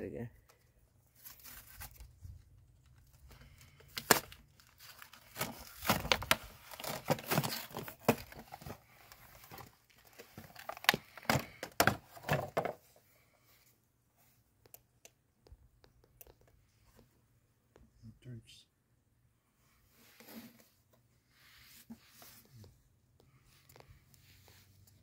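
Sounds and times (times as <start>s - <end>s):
cardboard and plastic packaging rustling: 0.5s - 13.3s
sharp packaging cracks: 3.8s - 8.4s.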